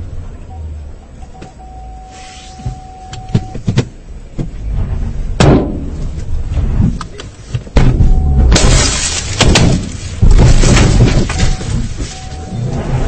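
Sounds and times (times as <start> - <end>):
car low rumble: 0.0 - 13.0
loud heavy thump: 3.3 - 7.0, 7.7 - 12.2.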